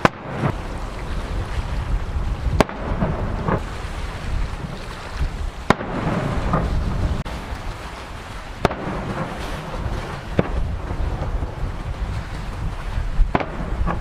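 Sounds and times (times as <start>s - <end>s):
rumbling echo: 0.0s - 7.6s.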